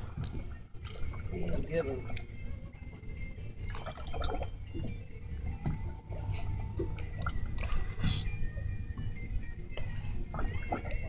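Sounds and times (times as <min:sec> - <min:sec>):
water lapping against boat hull: 0:00.0 - 0:11.0
small clicks and splashes: 0:00.2 - 0:02.3.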